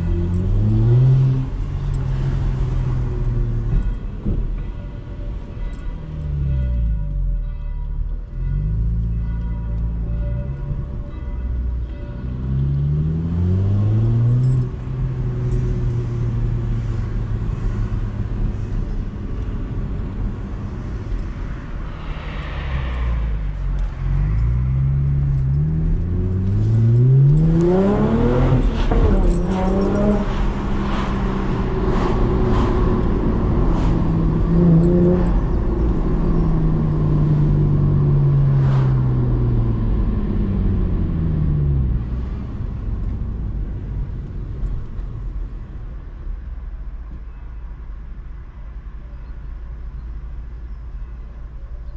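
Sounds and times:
car engine revving through gears: 23.8s - 42.3s.

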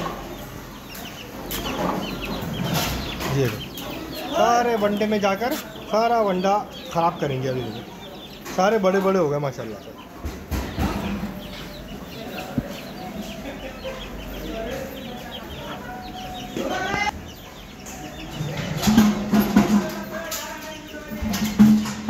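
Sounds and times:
hen clucking: 0.0s - 21.8s
chicks peeping: 0.0s - 22.0s
music with drum beat: 18.7s - 20.5s, 21.2s - 22.0s.

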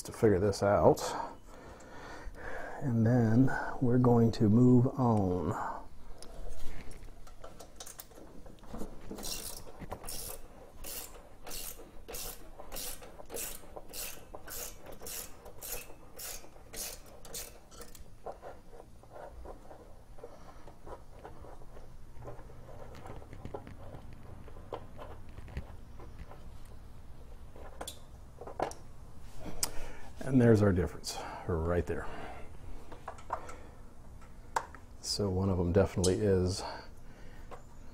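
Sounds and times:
ratchet wrench clicking: 9.2s - 18.0s.

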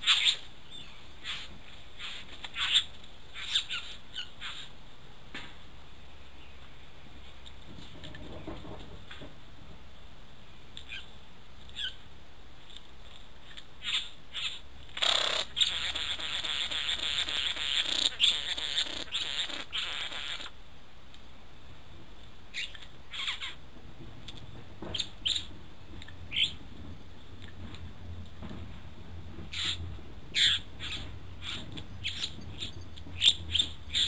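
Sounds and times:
bird harsh crackling buzz: 13.8s - 20.6s
bird chirps and clicks: 22.5s - 23.6s.

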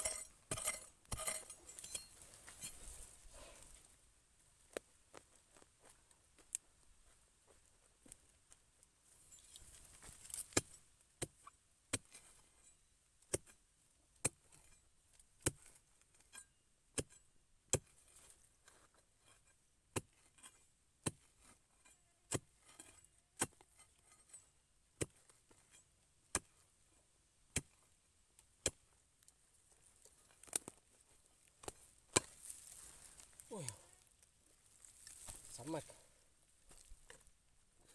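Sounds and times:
spade chopping into soil: 0.0s - 2.8s, 10.0s - 12.4s, 15.4s - 16.4s, 17.0s - 18.0s, 19.9s - 21.3s, 25.0s - 26.6s, 27.5s - 27.8s, 28.6s - 28.8s, 31.6s - 33.8s.

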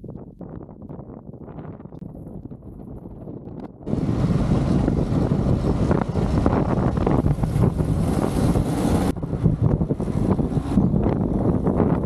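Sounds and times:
wind buffeting microphone: 0.0s - 12.0s
farm vehicle engine running: 3.9s - 12.0s.

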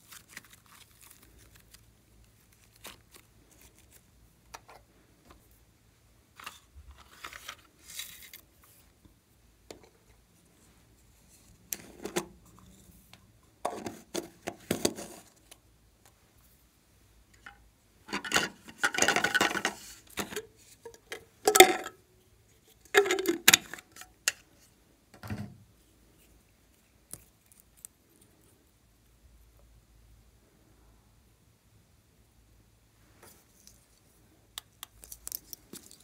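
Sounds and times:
plastic containers clicking and scraping: 11.7s - 12.7s, 13.6s - 15.5s, 17.3s - 22.0s, 22.8s - 24.4s.

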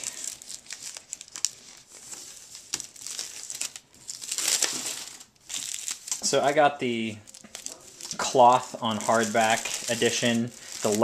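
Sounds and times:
plastic wrap crinkling and tearing: 0.0s - 11.0s.

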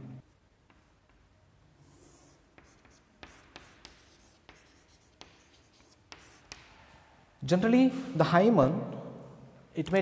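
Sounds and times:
chalk tapping on blackboard: 0.6s - 6.8s
chalk scratching on blackboard: 1.8s - 6.8s.

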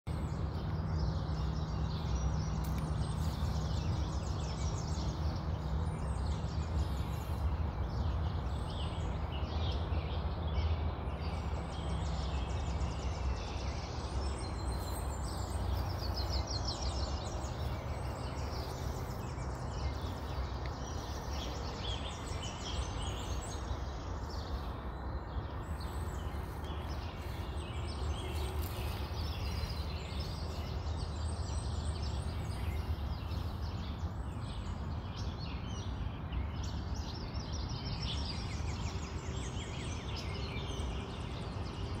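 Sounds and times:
constant low rumble: 0.1s - 42.0s.

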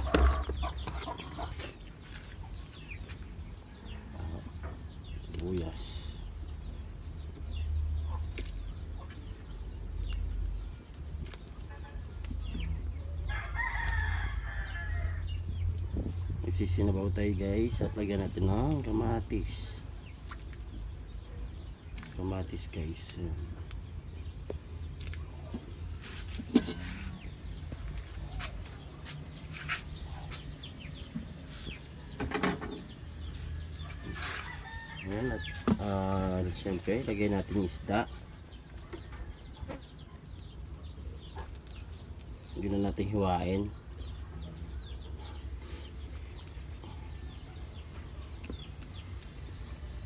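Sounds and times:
chickens clucking: 0.0s - 5.6s
birds chirping: 0.0s - 50.0s.

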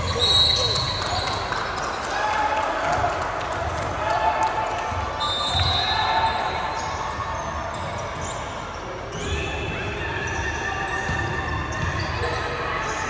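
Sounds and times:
basketball bouncing on court: 10.9s - 12.5s.

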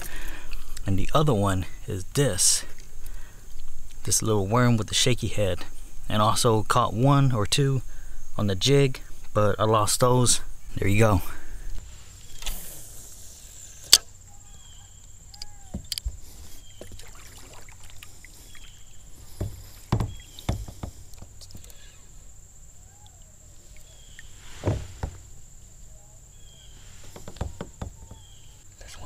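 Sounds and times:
fishing rod and reel clicking: 15.0s - 16.1s
heavy knocks on plastic kayak: 19.3s - 21.4s, 24.6s - 25.3s, 27.1s - 28.4s.

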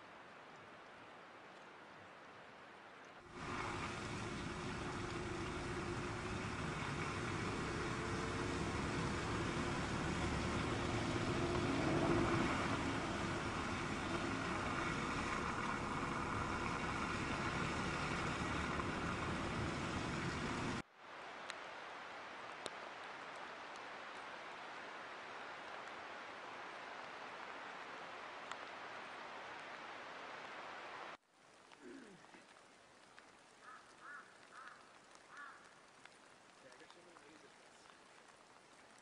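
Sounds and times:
vehicle running on snowy road: 3.3s - 20.8s
steady hiss: 3.3s - 23.1s.

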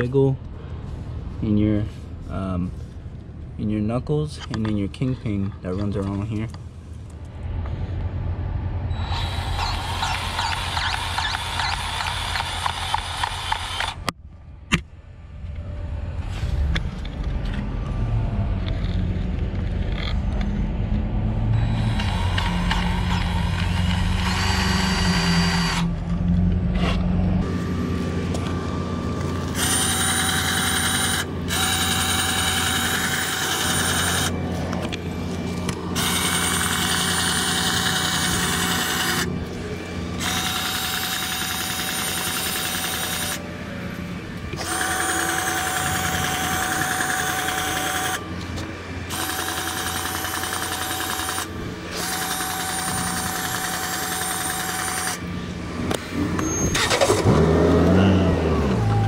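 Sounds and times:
low rumble: 6.3s - 11.5s, 14.0s - 29.6s
grease gun motor whirring: 8.9s - 14.1s, 21.6s - 26.0s, 29.2s - 35.0s, 35.6s - 39.3s, 40.1s - 43.5s, 44.5s - 58.0s.

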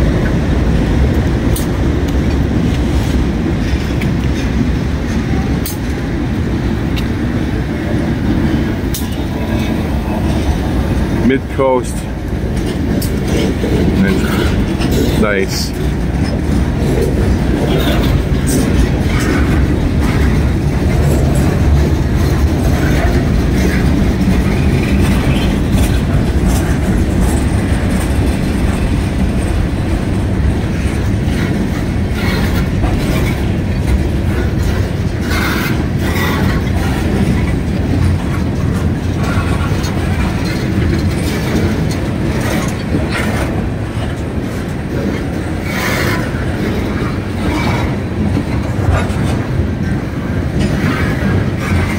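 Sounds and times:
train wheels rumbling on rail: 0.0s - 51.9s
wheels clicking over rail joints: 0.0s - 51.9s.

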